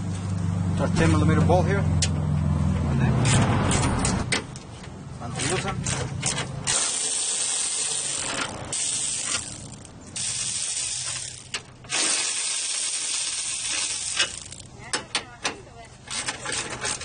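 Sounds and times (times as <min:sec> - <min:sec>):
electric ratchet whirring: 0:06.6 - 0:14.8.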